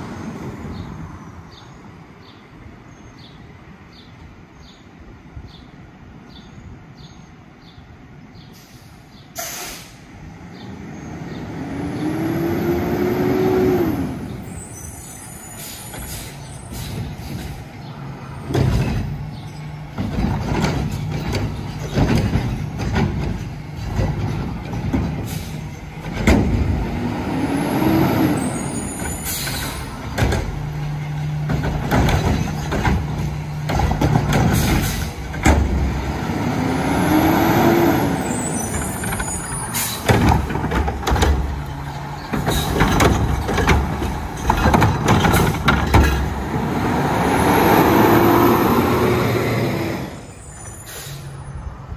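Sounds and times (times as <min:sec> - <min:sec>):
air brake hisses: 0:08.6 - 0:10.1, 0:15.2 - 0:17.5, 0:50.6 - 0:51.4
garbage truck engine revving: 0:10.8 - 0:14.7, 0:18.4 - 0:50.3
metal bangs and clanks: 0:18.4 - 0:27.1, 0:28.4 - 0:36.2, 0:38.7 - 0:46.5.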